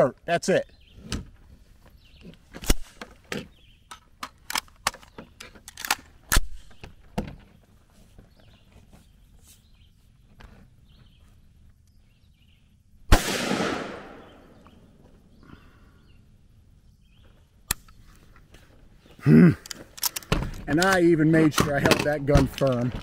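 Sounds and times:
metallic clicks of rifle handling: 3.9 - 6.8, 19.6 - 22.9
rifle shot with echo: 13.1 - 14.7.

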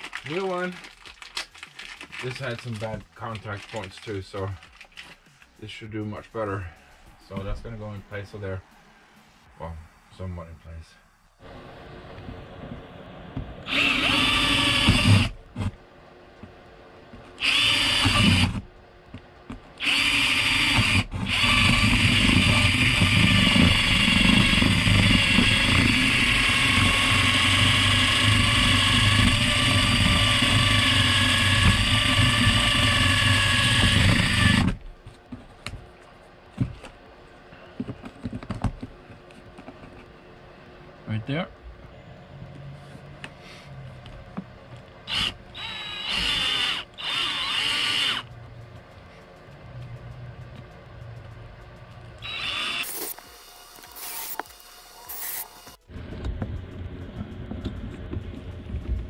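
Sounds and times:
cordless drill boring into wood: 13.7 - 15.4, 17.4 - 18.6, 19.8 - 34.8, 45.1 - 48.2, 52.2 - 55.8.

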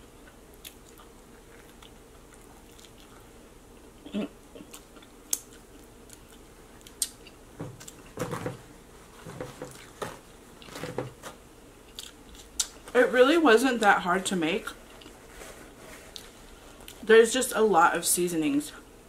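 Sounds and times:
chewing soft food: 0.0 - 8.2, 11.8 - 12.9, 14.7 - 15.3.

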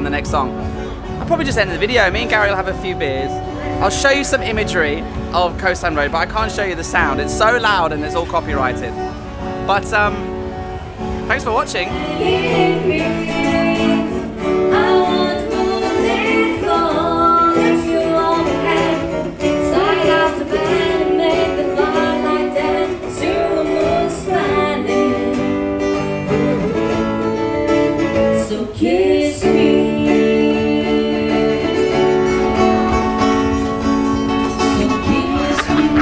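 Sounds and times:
acoustic guitar strumming: 0.0 - 36.0
person singing: 11.9 - 33.2, 34.5 - 36.0.

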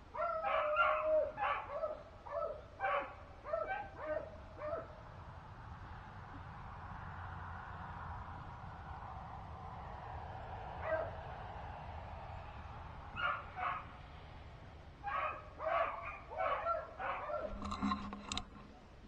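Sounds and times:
dogs barking and yipping: 0.0 - 5.2, 10.8 - 11.2, 13.1 - 14.2, 15.0 - 17.7.

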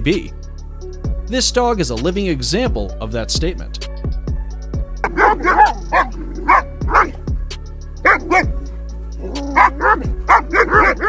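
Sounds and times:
music with steady beat: 0.0 - 11.0
dog barking: 5.0 - 7.3, 8.0 - 11.0.

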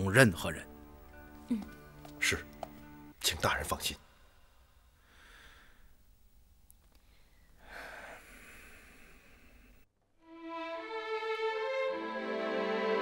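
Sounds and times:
person exhaling softly: 4.2 - 5.9, 7.0 - 9.8.

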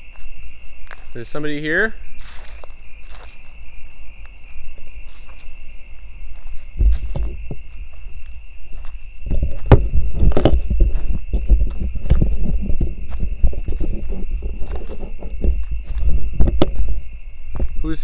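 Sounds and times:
crickets chirring: 0.0 - 18.0
footsteps crunching on trail: 0.0 - 18.0.

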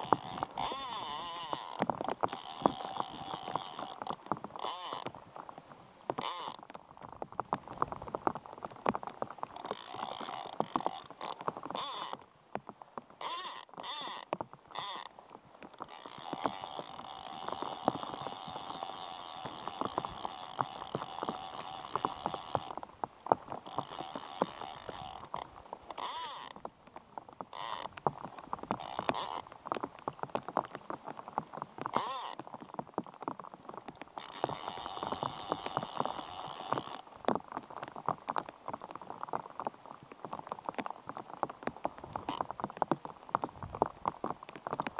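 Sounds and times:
rain pattering on river: 0.0 - 44.9
fly reel ratchet buzzing: 0.1 - 4.0, 4.6 - 5.0, 9.6 - 12.2, 15.8 - 22.7, 23.7 - 26.5, 34.2 - 37.0.

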